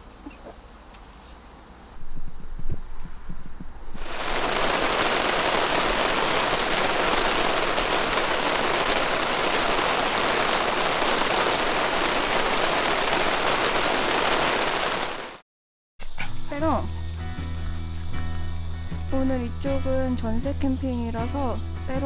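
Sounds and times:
steady rain hiss: 0:03.9 - 0:15.4.

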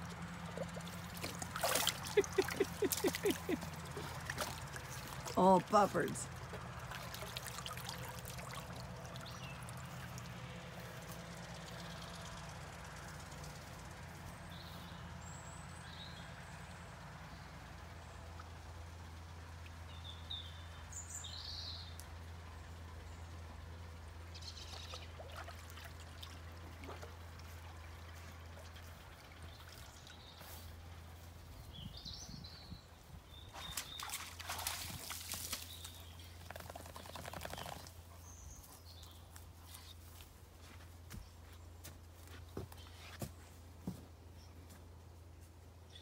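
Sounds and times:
water splashing and trickling: 0:00.0 - 0:14.2, 0:24.1 - 0:31.2, 0:33.3 - 0:38.0.

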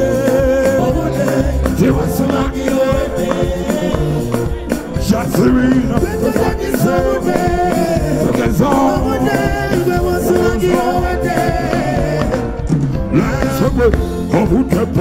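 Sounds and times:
live band music: 0:00.0 - 0:15.0
man singing into microphone: 0:00.0 - 0:15.0.

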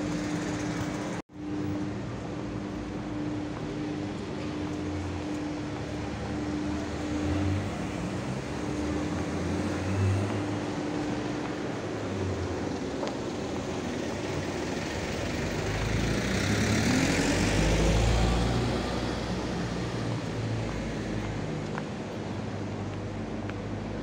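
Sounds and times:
street traffic hum: 0:00.0 - 0:24.0
vehicle passing close by: 0:14.7 - 0:21.6.

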